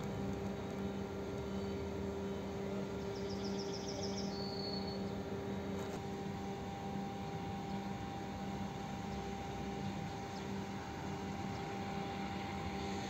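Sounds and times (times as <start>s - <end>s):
mechanical hum: 0.0s - 13.0s.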